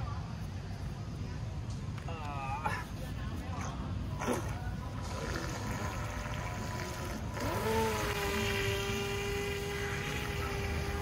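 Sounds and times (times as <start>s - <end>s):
toy boat electric motor whining: 5.4s - 11.0s.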